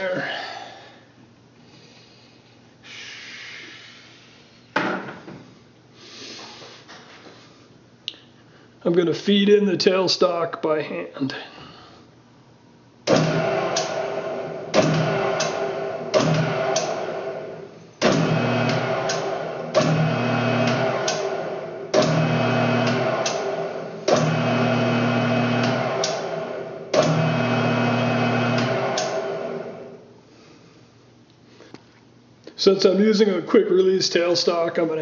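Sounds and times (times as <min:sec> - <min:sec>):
lathe switch click: 0:13.1 - 0:14.0, 0:14.7 - 0:17.0, 0:18.0 - 0:23.5, 0:24.1 - 0:24.5, 0:25.5 - 0:26.3, 0:26.9 - 0:27.5, 0:28.5 - 0:29.2
lathe motor and gear hum: 0:13.1 - 0:30.1.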